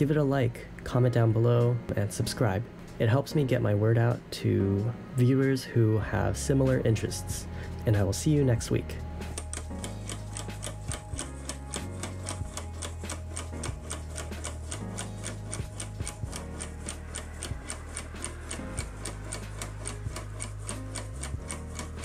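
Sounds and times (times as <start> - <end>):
low hum shifting in pitch: 6.1 - 22.0.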